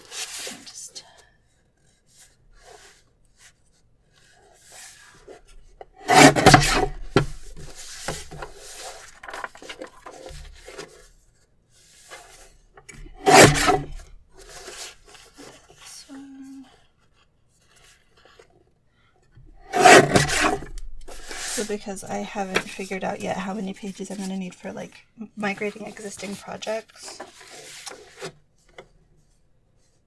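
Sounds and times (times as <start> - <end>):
paper rustling and sliding: 0.0 - 0.7, 1.5 - 18.6, 19.6 - 24.7, 25.5 - 30.0
paper trimmer cutting: 6.1 - 7.0, 13.2 - 14.0.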